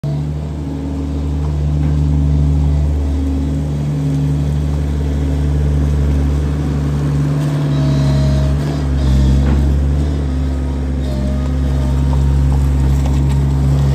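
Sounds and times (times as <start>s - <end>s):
diesel engine droning: 0.0s - 13.9s.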